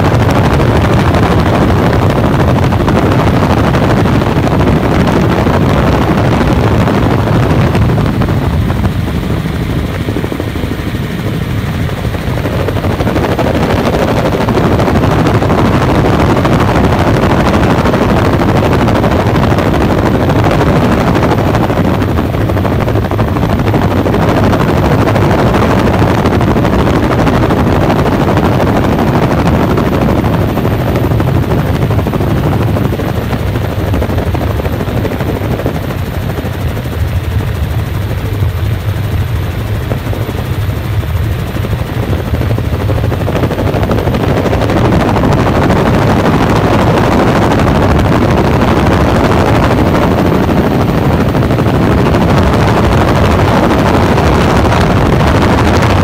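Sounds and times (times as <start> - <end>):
helicopter engine and rotor drone: 0.0 - 56.0.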